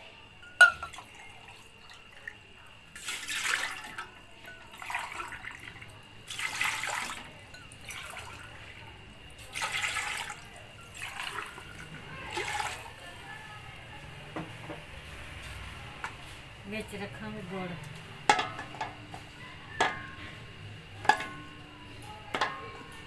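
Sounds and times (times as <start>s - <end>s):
water pouring into metal pot: 0.3s - 13.5s.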